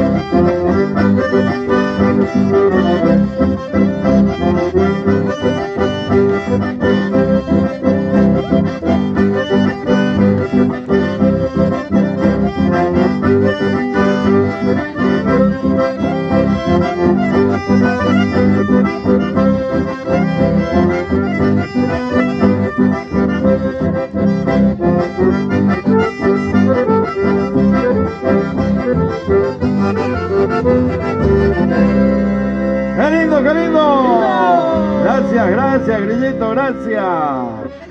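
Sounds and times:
accordions playing melody: 0.0s - 37.9s
electric bass line: 0.0s - 37.9s.

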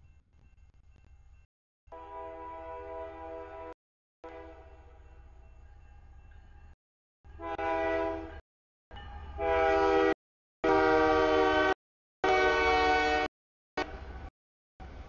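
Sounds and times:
locomotive air horn blasts: 1.9s - 5.0s, 7.3s - 8.4s, 9.3s - 13.3s.

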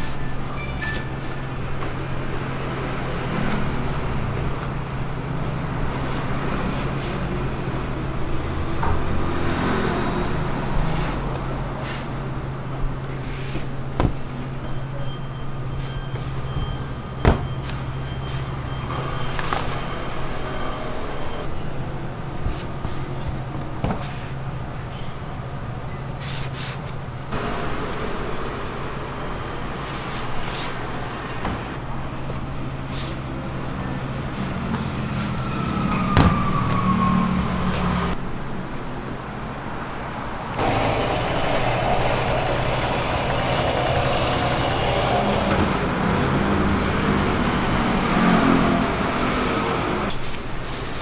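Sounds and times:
traffic noise: 0.0s - 51.0s.

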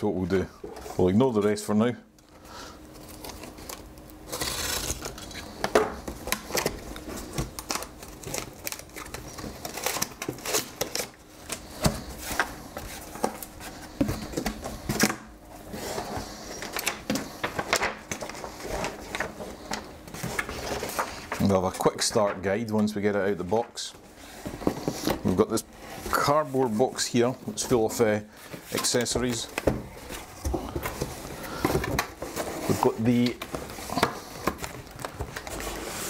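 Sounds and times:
tape peeled off cardboard box: 4.3s - 5.4s
paper sheet rustling: 15.6s - 36.0s.

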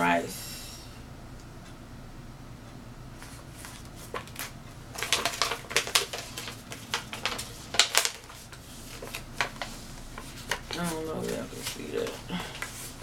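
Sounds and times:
plastic packaging crinkling: 3.6s - 13.0s.

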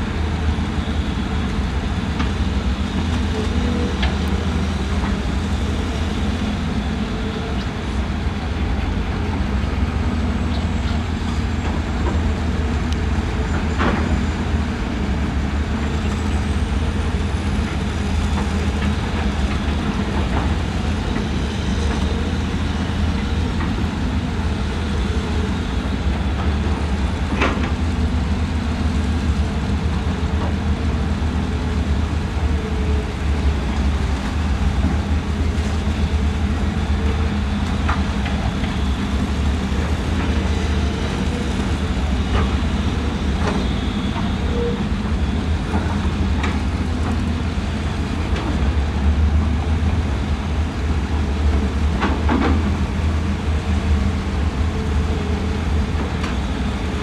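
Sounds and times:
excavator diesel engines droning: 0.0s - 57.0s.

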